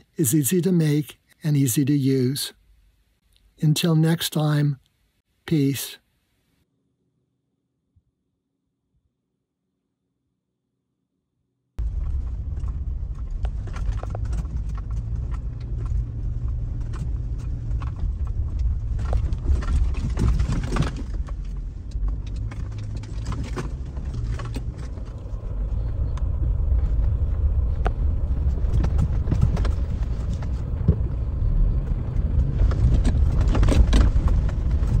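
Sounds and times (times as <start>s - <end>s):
knocks and rattles: 11.8s - 25.2s, 27.8s - 35.0s
vehicle driving on dirt trail: 11.8s - 35.0s.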